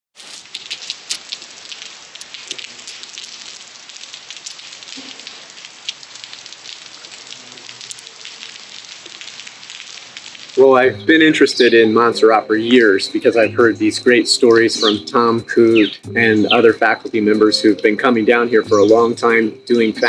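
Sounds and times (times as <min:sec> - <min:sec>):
rain on tiled terrace: 0:00.1 - 0:13.4.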